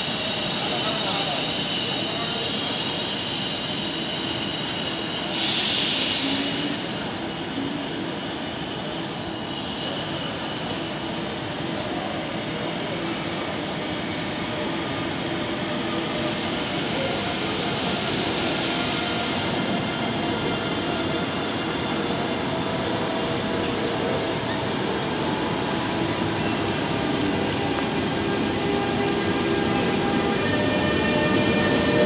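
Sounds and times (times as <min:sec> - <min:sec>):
hiss: 0:00.0 - 0:09.2, 0:14.4 - 0:21.4
electric locomotive humming: 0:00.0 - 0:32.0.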